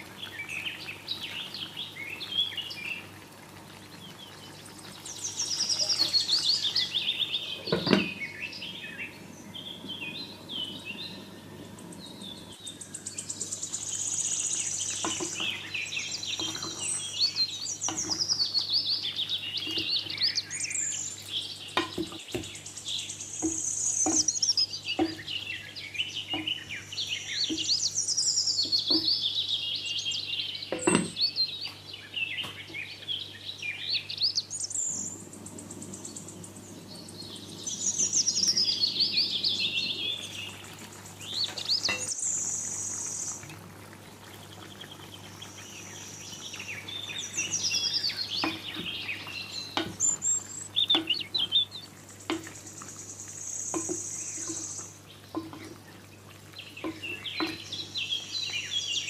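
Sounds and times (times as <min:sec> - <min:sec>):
covered pan simmering hiss: 0:00.0 - 0:59.0
small birds chirping: 0:00.0 - 0:59.0
light taps from stirring pan: 0:49.7 - 0:50.2, 0:52.3 - 0:52.6, 0:53.7 - 0:54.6, 0:55.3 - 0:55.8.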